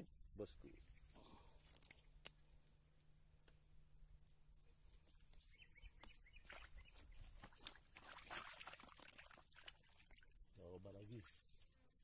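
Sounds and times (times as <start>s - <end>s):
hands handling fishing gear: 1.2s - 3.6s.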